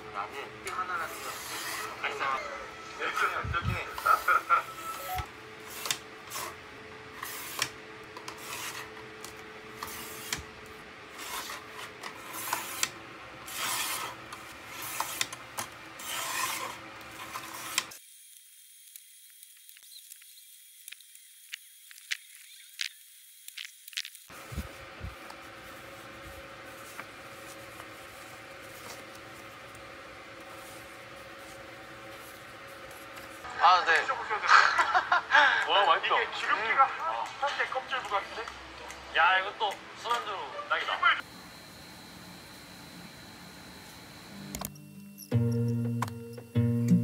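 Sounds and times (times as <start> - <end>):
paper trimmer rasping: 1.0 - 2.0, 5.6 - 10.5, 11.1 - 33.5
paper rustling on desk: 24.3 - 33.5.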